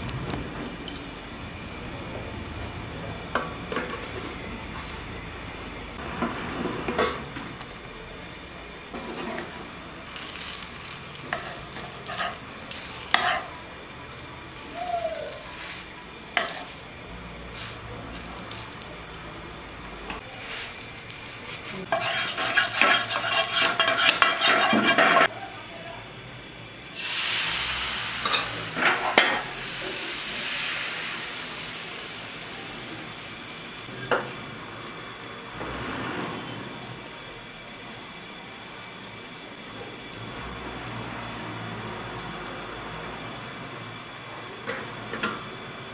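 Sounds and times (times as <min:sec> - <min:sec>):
food sizzling in pan: 0:08.9 - 0:19.3, 0:19.9 - 0:25.4, 0:26.7 - 0:35.7
metal utensils clinking: 0:21.9 - 0:25.3.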